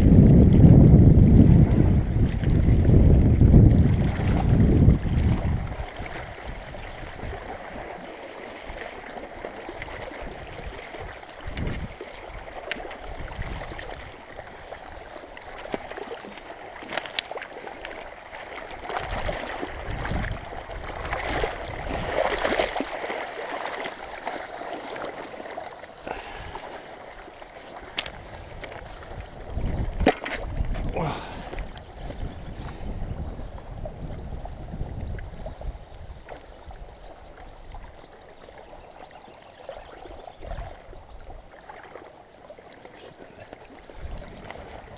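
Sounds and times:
river water trickling: 0:00.0 - 0:44.9
fish splashing in shallows: 0:01.6 - 0:32.7.

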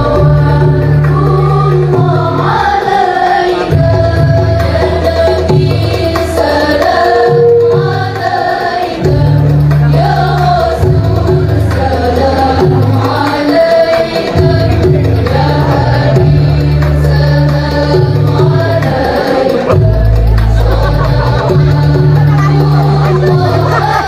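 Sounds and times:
deep bass notes: 0:00.0 - 0:02.8, 0:14.4 - 0:24.0
group singing devotional song: 0:00.0 - 0:24.0.

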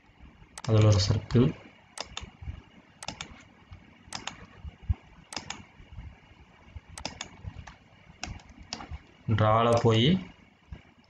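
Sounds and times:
faint background hiss: 0:00.0 - 0:11.0
computer mouse clicking: 0:00.6 - 0:01.2, 0:02.0 - 0:02.4, 0:03.0 - 0:04.6, 0:05.3 - 0:05.7, 0:07.0 - 0:10.0.

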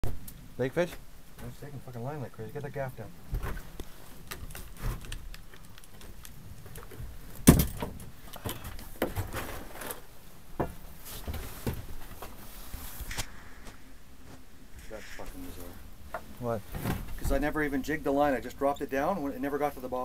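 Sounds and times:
loud thump: 0:07.4 - 0:08.0.

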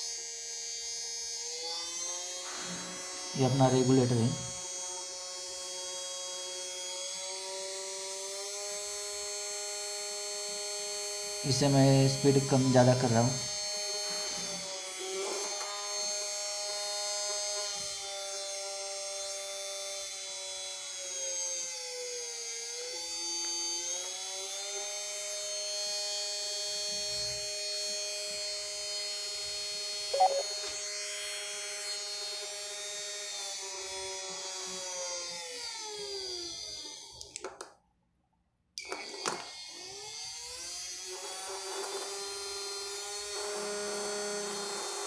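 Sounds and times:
electric motor whine: 0:00.0 - 0:11.4.

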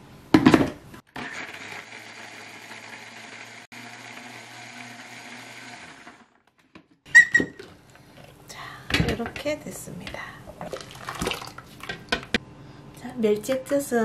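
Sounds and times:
blender running: 0:01.1 - 0:06.4.

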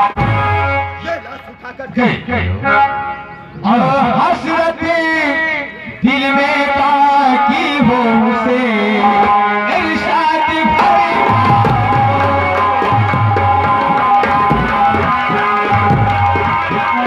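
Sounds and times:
electronic keyboard melody: 0:00.0 - 0:05.2
hand drum rhythm: 0:10.7 - 0:17.0.

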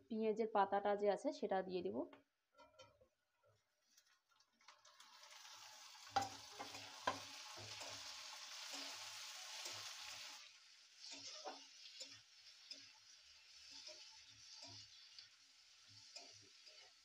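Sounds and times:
vegetables sizzling in oil: 0:04.7 - 0:17.0
metal spatula scraping pan: 0:11.0 - 0:17.0.

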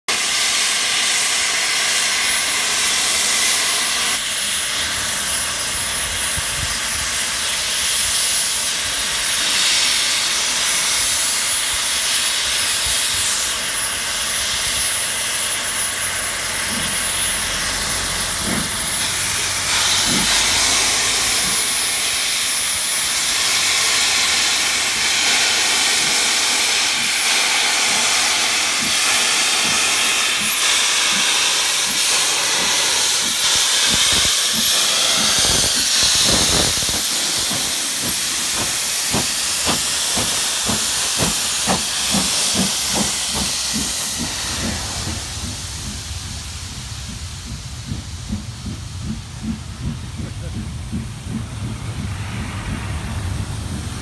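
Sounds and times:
steam hissing from locomotive: 0:00.1 - 0:54.0
low thuds: 0:43.0 - 0:54.0.

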